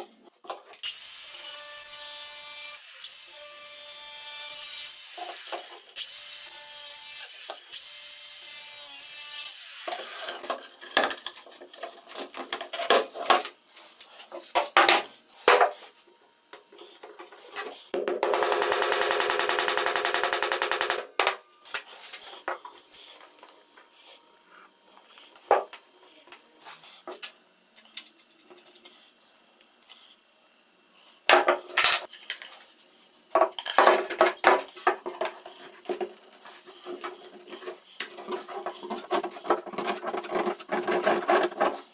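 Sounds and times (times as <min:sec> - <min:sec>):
angle grinder cutting plastic pipe: 0:00.7 - 0:15.9
power tool running: 0:16.6 - 0:26.1.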